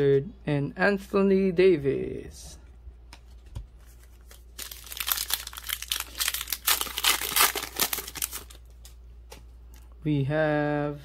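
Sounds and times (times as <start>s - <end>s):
foil wrapper crinkling: 3.8s - 9.0s.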